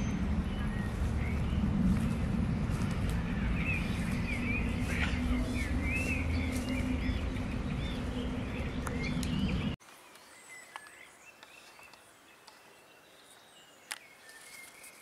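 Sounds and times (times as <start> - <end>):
low rumble: 0.0 - 9.8
small birds chirping: 0.0 - 15.0.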